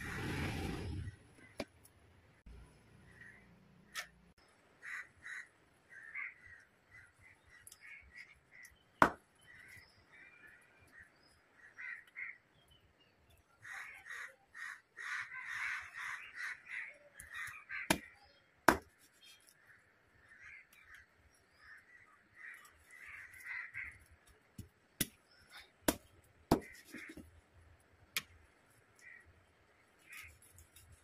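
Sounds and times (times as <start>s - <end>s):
birds harsh calls: 3.0s - 27.4s
cleaver chopping fish: 9.0s - 9.2s, 17.9s - 19.0s, 25.8s - 27.2s.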